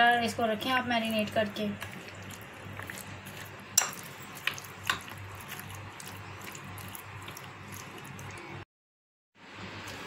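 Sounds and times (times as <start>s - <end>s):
spoon stirring in glass bowl: 1.1s - 8.6s.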